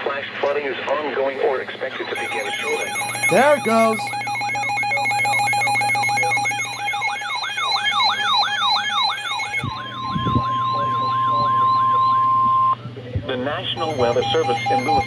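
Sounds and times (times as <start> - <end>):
long steady alarm tone: 1.7 - 12.8, 13.7 - 15.0
steady high beeps: 2.0 - 12.8, 13.8 - 15.0
rising-falling siren warble: 6.8 - 12.8.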